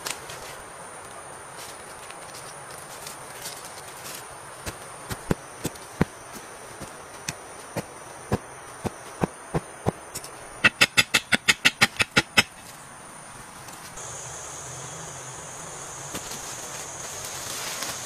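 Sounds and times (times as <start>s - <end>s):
high insect whine: 0.0s - 18.0s
stick knocking forest floor: 4.6s - 12.6s, 16.1s - 18.0s.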